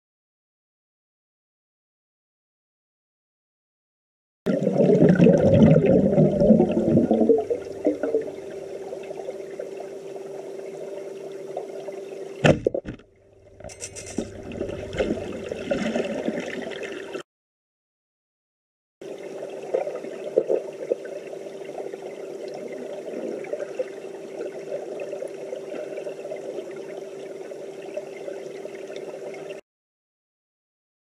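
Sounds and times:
constant low hum: 5.6 - 17.0.

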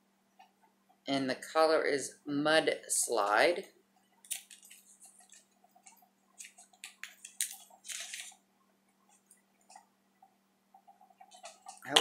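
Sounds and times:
soft rustle: 4.0 - 8.4.

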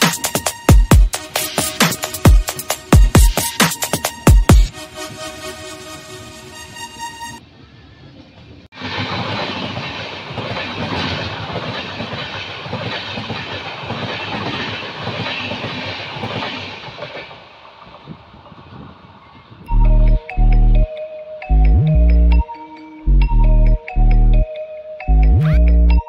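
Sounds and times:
passing train rushing: 0.0 - 21.5
train running noise: 0.0 - 22.5
wheels clattering over rail joints: 8.4 - 19.4.

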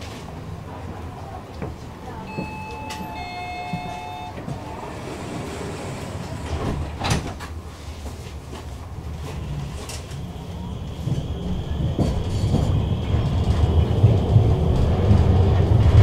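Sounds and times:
tram humming: 0.0 - 16.0
descending two-note chime: 2.3 - 4.4
sliding doors shutting: 2.3 - 7.6.

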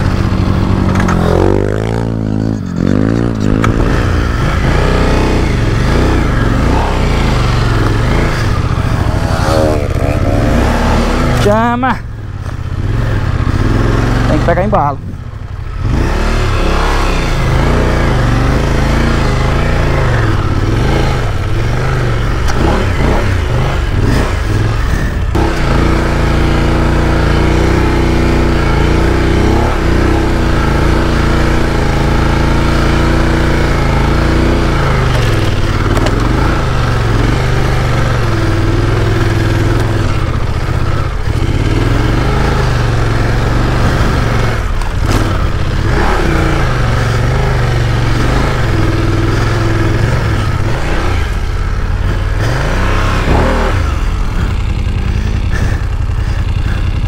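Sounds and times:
motorcycle engine revving under load: 0.0 - 57.0.

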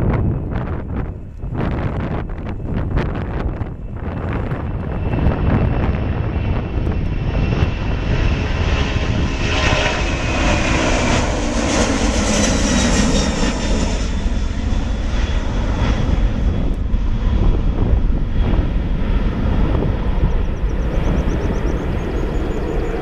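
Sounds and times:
jet engines roaring: 0.0 - 23.0
steady low rumble: 0.0 - 23.0
jet whine falling in pitch: 18.3 - 23.0.

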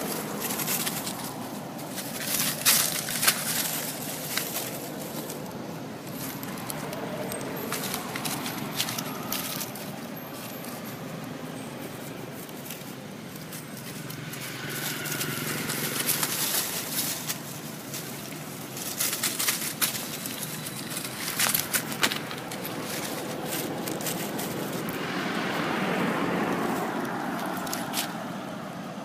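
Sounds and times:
dry leaves crackling: 0.0 - 29.0
outdoor background hiss: 0.0 - 29.0.

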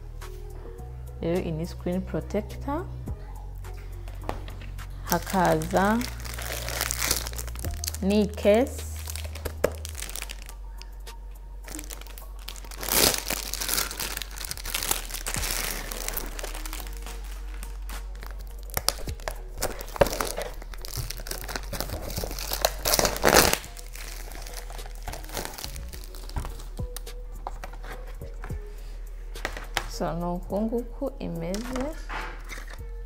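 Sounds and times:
plastic bag crinkling and tearing: 5.1 - 10.6, 11.7 - 26.7, 31.5 - 32.8.

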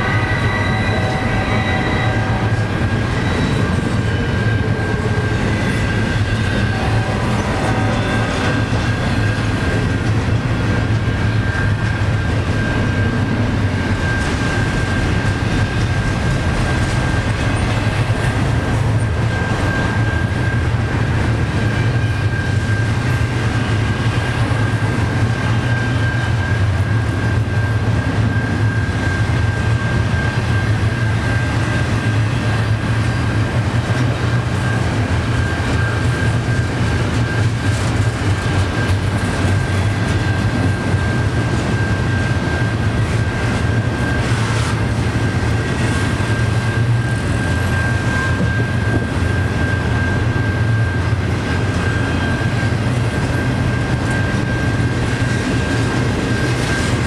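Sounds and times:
steady high tone: 0.0 - 15.7
train wheels rumbling on rail: 0.0 - 57.0.

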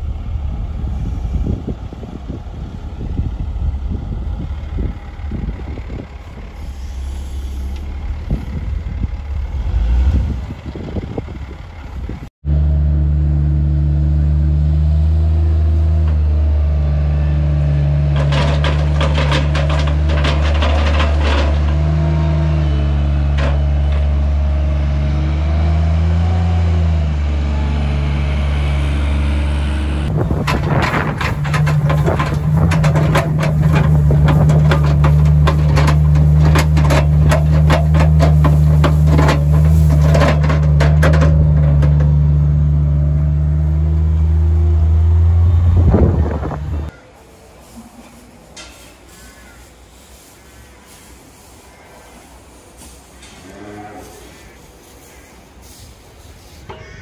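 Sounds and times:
loader engine running: 0.0 - 47.0
machine rattling and clattering: 18.0 - 22.2, 30.1 - 42.2.

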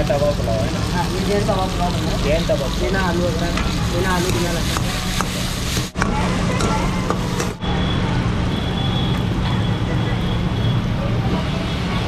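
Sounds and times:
vegetables sizzling in a wok: 0.0 - 9.4.

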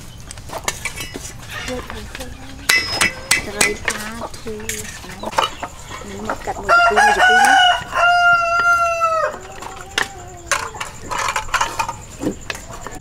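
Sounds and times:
chickens clucking: 0.0 - 13.0
rooster crowing: 6.5 - 10.9.

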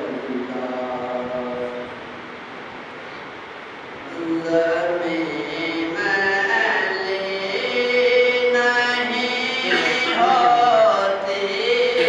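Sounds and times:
man singing: 4.1 - 12.0.

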